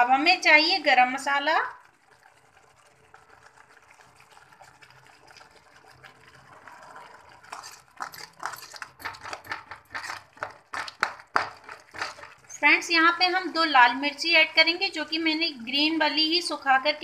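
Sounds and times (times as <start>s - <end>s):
masala sizzling: 0.0s - 17.0s
spatula scraping metal pan: 7.5s - 12.4s.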